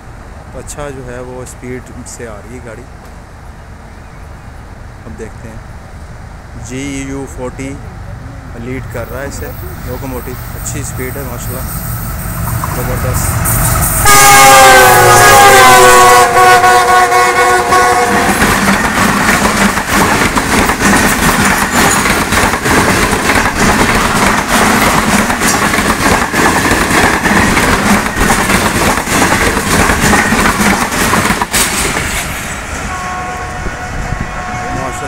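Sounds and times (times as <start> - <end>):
train coaches rushing past: 0.0 - 35.0
locomotive multi-tone horn: 13.9 - 18.5, 32.9 - 35.0
wheels clattering over rail joints: 18.3 - 32.4.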